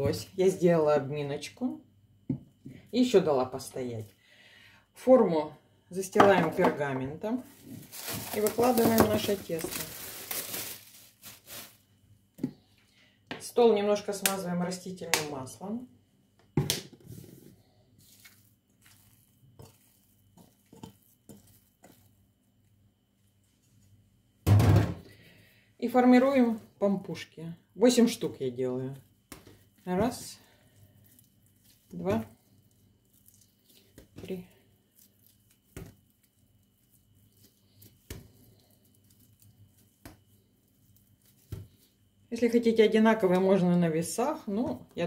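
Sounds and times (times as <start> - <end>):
bowl tapping and knocking: 6.2 - 6.8.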